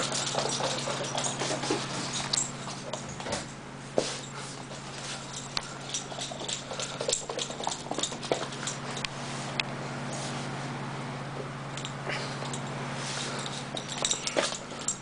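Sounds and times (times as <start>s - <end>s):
puppy claws clicking on wood floor: 0.0s - 3.3s, 5.4s - 8.9s
steady low hum: 0.0s - 15.0s.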